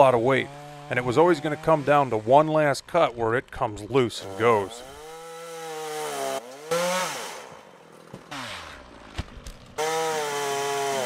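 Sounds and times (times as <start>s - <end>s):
chainsaw revving: 0.0s - 2.5s, 4.1s - 9.0s, 9.8s - 11.0s.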